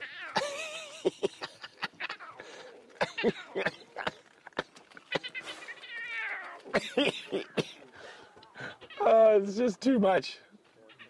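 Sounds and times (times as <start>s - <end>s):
lion cub mewing: 5.0s - 7.9s.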